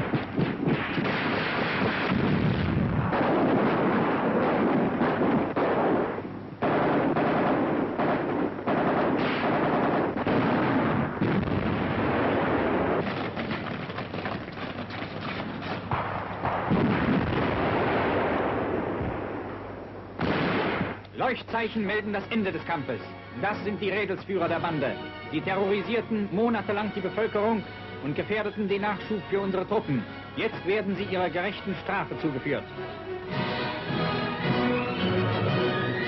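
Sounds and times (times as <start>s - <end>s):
gunshots: 0.0s - 19.6s, 20.2s - 21.2s
shell explosions: 0.0s - 35.6s.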